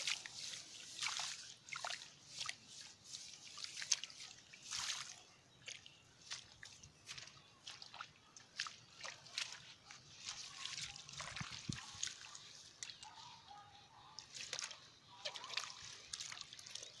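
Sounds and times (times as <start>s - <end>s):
muddy water sloshing and splashing: 0.0s - 17.0s
water dripping: 3.5s - 13.2s, 14.2s - 17.0s.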